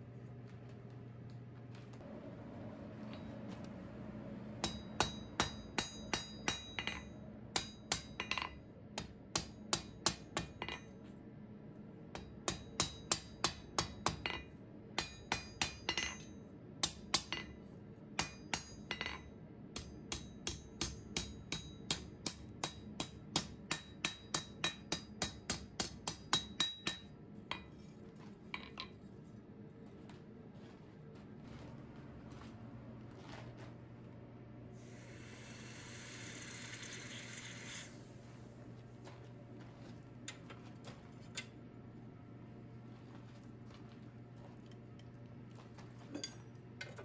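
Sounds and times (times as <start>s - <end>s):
hammer striking steel on anvil: 4.6s - 10.9s, 12.2s - 17.6s, 18.2s - 27.8s.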